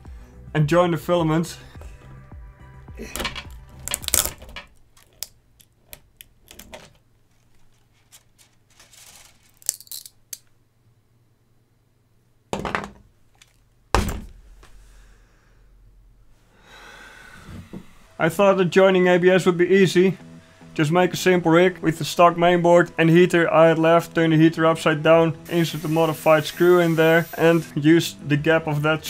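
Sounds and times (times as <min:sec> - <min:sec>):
heavy thuds: 0:17.3 - 0:18.0.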